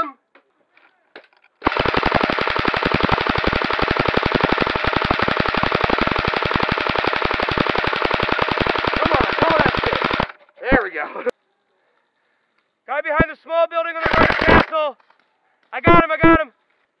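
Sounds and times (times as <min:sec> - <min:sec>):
airsoft rifle full-auto burst: 0:01.6 - 0:10.4, 0:14.0 - 0:14.8.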